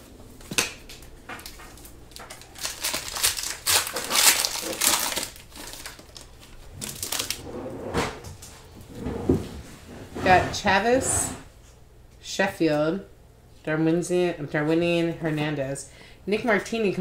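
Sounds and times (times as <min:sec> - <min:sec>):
wrapper crinkling and tearing: 0:01.4 - 0:07.4.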